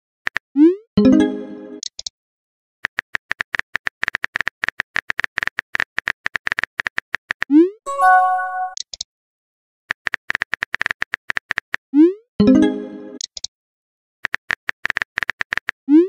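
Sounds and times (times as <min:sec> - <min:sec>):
rapid keyboard clicks: 0:02.8 - 0:07.5, 0:09.9 - 0:11.8, 0:14.2 - 0:15.8
chord of tones: 0:07.9 - 0:08.8.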